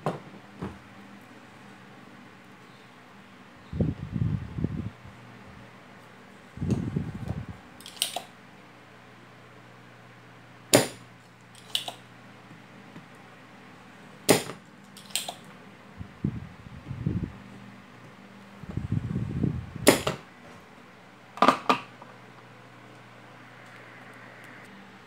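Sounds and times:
desoldering pump snapping: 7.8s - 8.3s, 10.7s - 12.0s, 14.3s - 15.5s.

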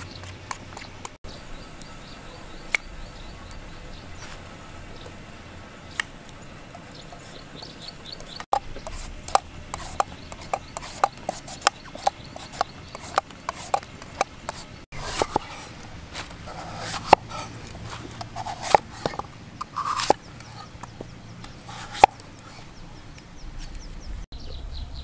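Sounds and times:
knife scraping gourd skin: 6.8s - 22.7s.

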